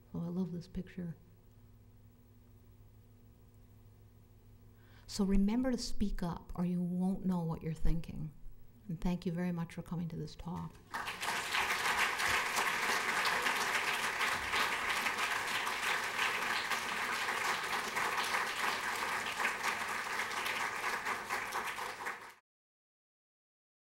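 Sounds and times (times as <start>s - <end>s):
audience applauding: 10.9s - 22.4s.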